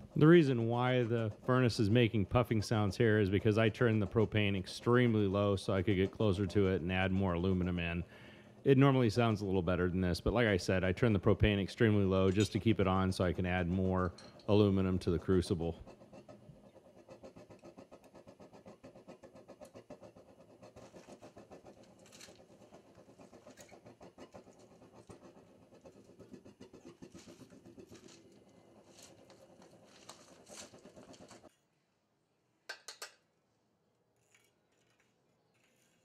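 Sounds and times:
propane furnace flame puffing: 0.0 - 17.0.

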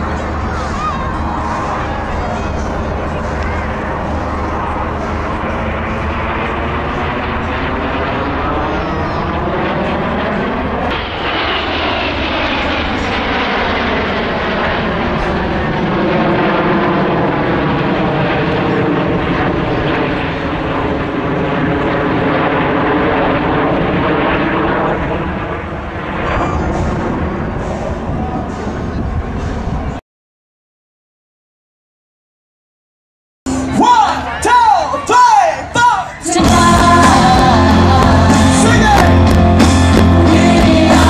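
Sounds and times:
jets flying past overhead: 0.0 - 30.0.

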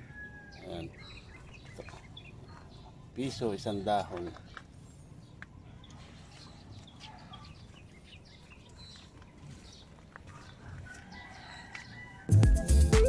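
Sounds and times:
rooster crowing: 0.0 - 0.8, 10.8 - 12.4
electronic music with steady beat: 12.3 - 13.0.

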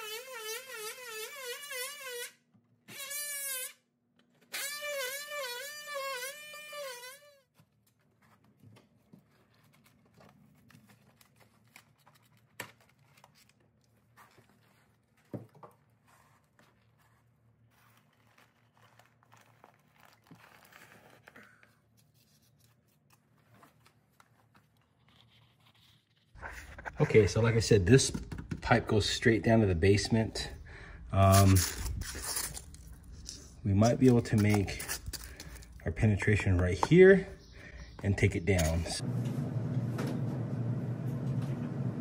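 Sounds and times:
drywall scraping and tearing: 8.0 - 22.6, 31.2 - 36.1.

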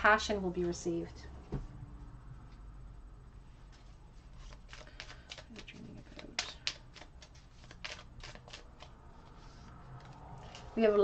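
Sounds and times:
cards being shuffled: 3.7 - 10.8.

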